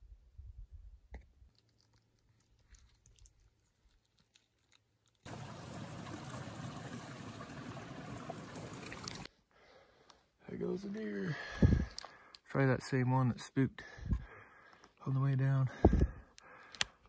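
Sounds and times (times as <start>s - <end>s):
running water of a stream: 5.2s - 9.3s.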